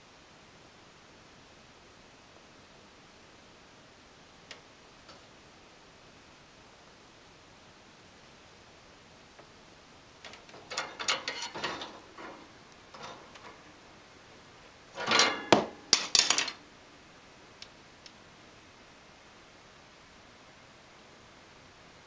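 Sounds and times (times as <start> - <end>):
faint ticks: 4.4 - 5.3, 17.6 - 18.2
wire cage rattling: 10.2 - 14.2, 14.9 - 16.6.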